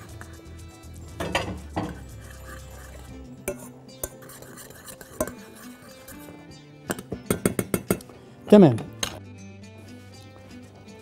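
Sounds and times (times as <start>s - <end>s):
spoon stirring sauce: 0.0s - 8.2s
spoon clinking against pan: 3.4s - 5.6s, 6.9s - 8.1s.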